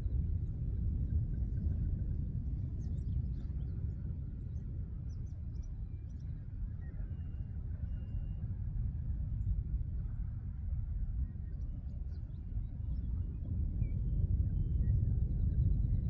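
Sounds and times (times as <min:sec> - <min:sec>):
low rumble: 0:00.0 - 0:16.0.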